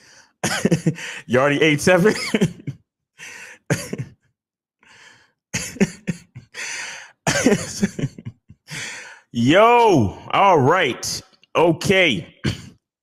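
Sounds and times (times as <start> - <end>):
man's breathy vocal bursts: 6.5 - 7.2, 8.7 - 9.4.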